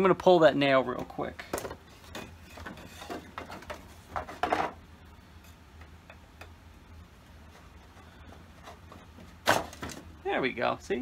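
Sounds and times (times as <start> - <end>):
tool and wood clattering: 1.0 - 4.8, 8.3 - 10.1.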